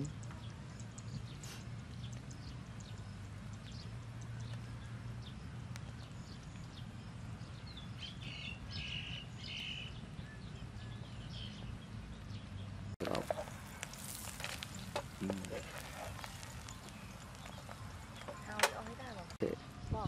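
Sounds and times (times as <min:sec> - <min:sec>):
omelette crackling in oil: 0:13.0 - 0:19.4.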